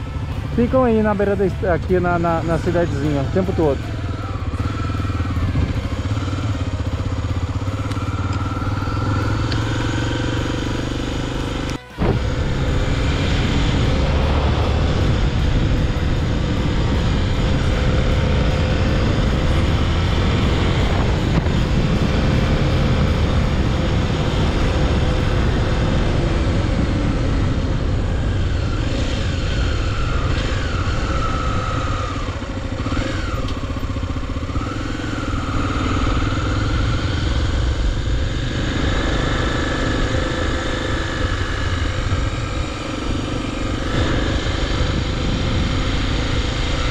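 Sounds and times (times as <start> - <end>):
motorcycle engine running: 0.0 - 46.9
wind rushing: 12.0 - 33.0.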